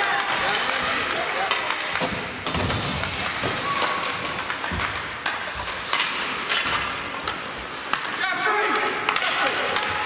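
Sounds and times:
skate blades scraping ice: 0:00.0 - 0:10.0
sticks knocking puck: 0:00.0 - 0:10.0.

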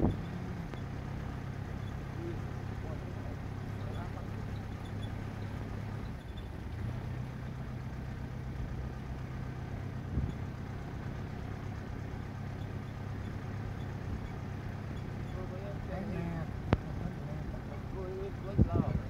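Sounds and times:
truck engine running: 0:00.0 - 0:19.0.

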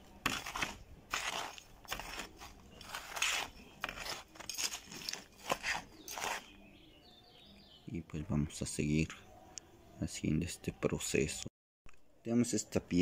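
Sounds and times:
metal trowel scraping gritty soil: 0:00.0 - 0:06.7.

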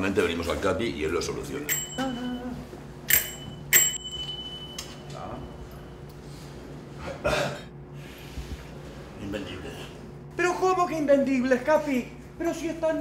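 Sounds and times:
bicycle bell dings: 0:01.6 - 0:06.0.

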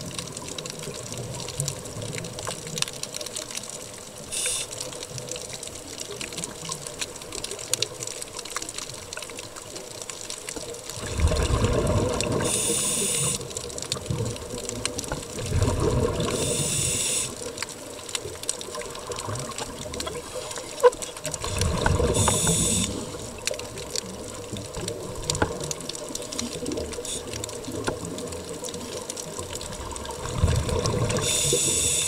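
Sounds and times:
bubbling: 0:00.0 - 0:32.0
diver breathing through regulator: 0:12.4 - 0:13.4, 0:16.3 - 0:17.4, 0:22.0 - 0:23.4, 0:31.2 - 0:32.0.

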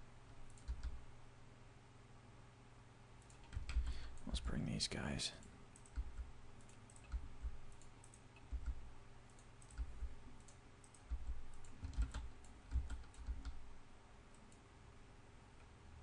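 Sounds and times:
keyboard and mouse clicks: 0:00.4 - 0:01.0, 0:03.2 - 0:04.3, 0:05.7 - 0:13.6.

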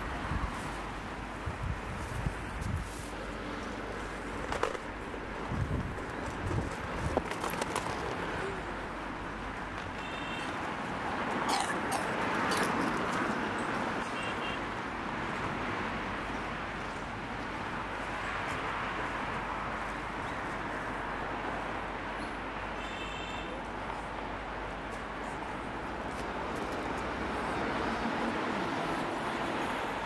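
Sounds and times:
traffic hiss: 0:00.0 - 0:06.2.

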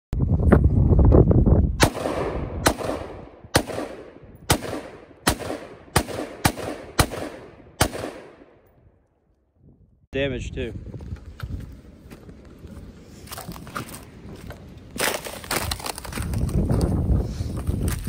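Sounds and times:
gunshots with ring-out: 0:01.8 - 0:08.6
low rumble and small cracks: 0:10.9 - 0:17.0.

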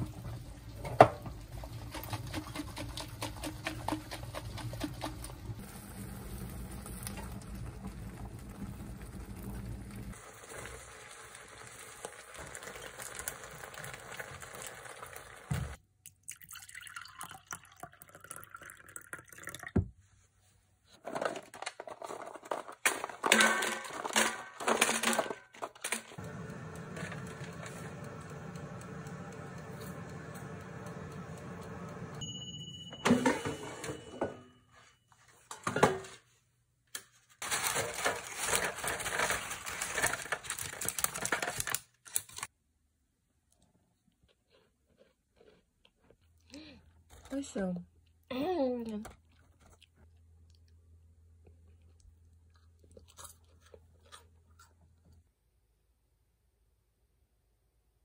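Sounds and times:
sauce simmering in frying pan: 0:05.6 - 0:15.8
rustling and clatter of plastic tray: 0:21.0 - 0:26.2, 0:37.4 - 0:41.8
air fryer humming: 0:26.2 - 0:34.3
air fryer electronic beep: 0:26.2 - 0:34.5.

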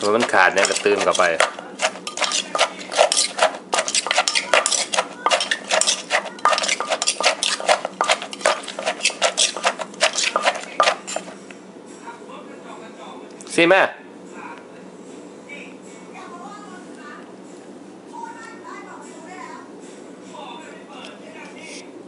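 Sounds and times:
metal spoon scraping mortar: 0:00.0 - 0:11.4
pestle pounding in mortar: 0:00.0 - 0:11.4.

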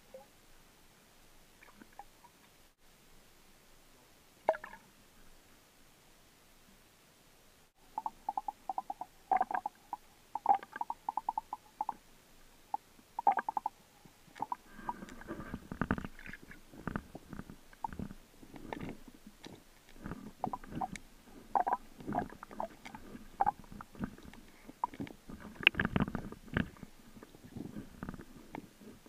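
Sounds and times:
underwater gurgling and rumbling: 0:08.0 - 0:11.9, 0:14.4 - 0:29.0
underwater clicks and knocks: 0:14.4 - 0:28.7.

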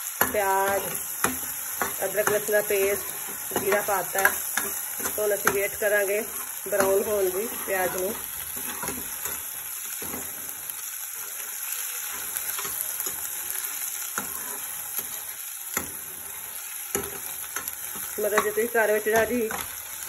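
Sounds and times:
onions sizzling in oil: 0:00.0 - 0:20.0
steel ladle scraping a pan: 0:00.6 - 0:10.6, 0:12.1 - 0:15.2.

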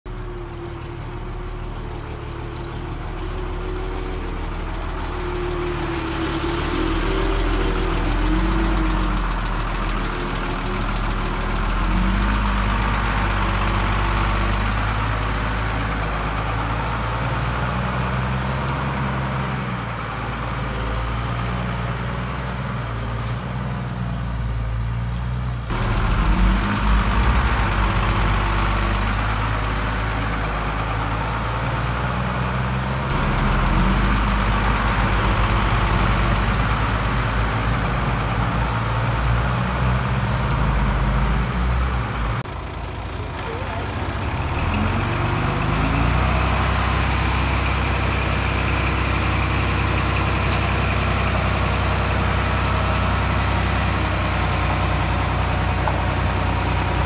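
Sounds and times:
heavy diesel engines running: 0:00.1 - 0:57.0
loud low rumble: 0:25.7 - 0:29.7.

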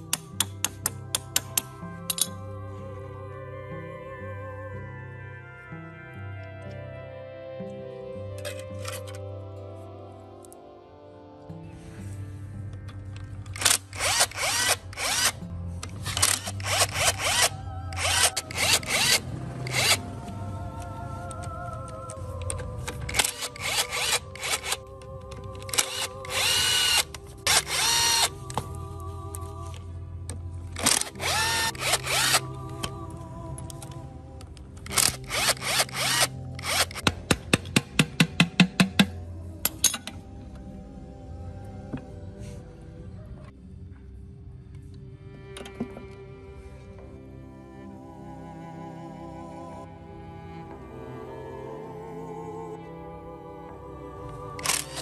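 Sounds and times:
background music: 0:00.0 - 0:55.0
power driver motor whine: 0:12.9 - 0:28.7, 0:30.6 - 0:32.9, 0:34.9 - 0:37.1
impact wrench hammering: 0:35.3 - 0:39.2.

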